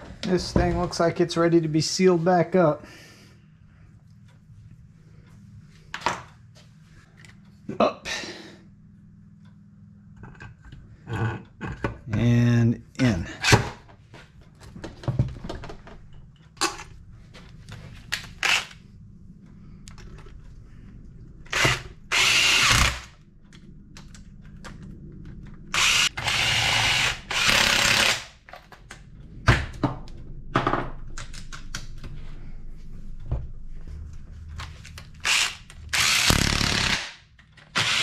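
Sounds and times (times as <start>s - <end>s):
clicks and knocks of parts: 34.6s - 38.0s.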